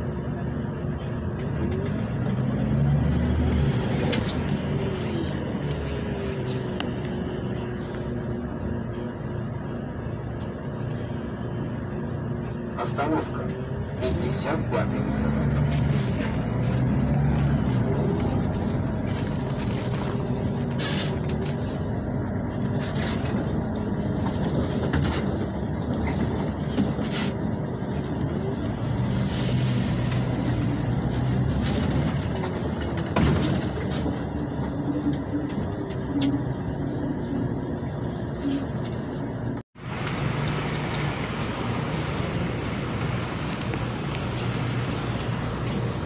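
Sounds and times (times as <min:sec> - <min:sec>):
bus diesel engine driving: 0:00.0 - 0:46.0.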